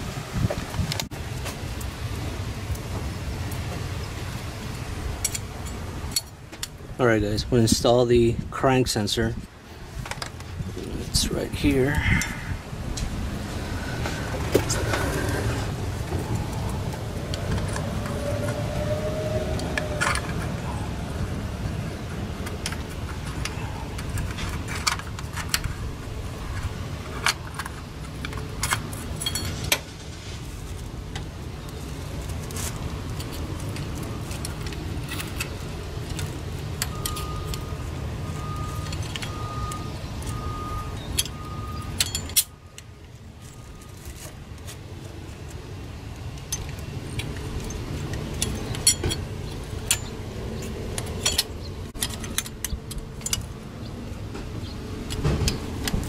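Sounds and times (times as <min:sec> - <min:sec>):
tools and metal parts clinking: 0:05.2 - 0:06.7, 0:22.4 - 0:29.9, 0:31.9 - 0:44.8, 0:46.3 - 0:54.0
low rumble: 0:09.3 - 0:24.8.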